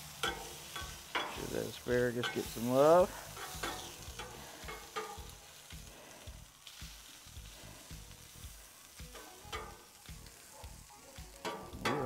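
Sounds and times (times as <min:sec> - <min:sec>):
vegetables sizzling on griddle: 0:00.0 - 0:12.0
metal spatula scraping and tapping: 0:00.1 - 0:01.5, 0:02.1 - 0:05.3, 0:09.1 - 0:09.9, 0:11.4 - 0:12.0.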